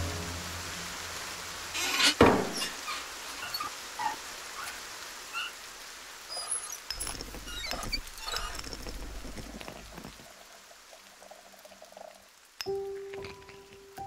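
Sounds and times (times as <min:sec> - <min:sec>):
squeaks and ticks of satellite dish: 0:06.3 - 0:09.2.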